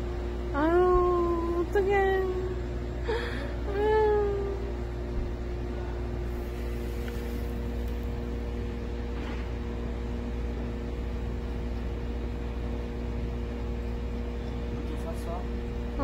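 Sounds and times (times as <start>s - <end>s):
machine humming: 0.0s - 16.0s.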